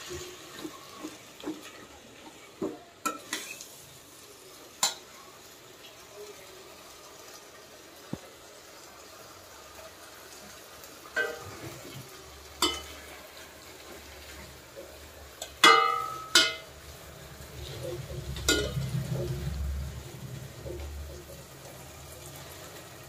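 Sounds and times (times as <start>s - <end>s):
frying hiss: 0.0s - 23.0s
spatula clinking against pot: 12.6s - 13.0s, 15.4s - 16.7s, 18.4s - 18.9s.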